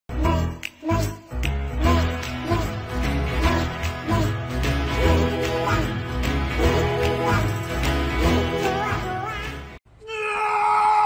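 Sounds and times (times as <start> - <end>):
upbeat music with deep bass: 0.1 - 9.8.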